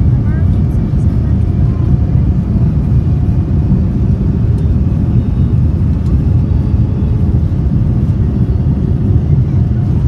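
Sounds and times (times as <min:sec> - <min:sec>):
jet engines rumbling: 0:00.0 - 0:10.0.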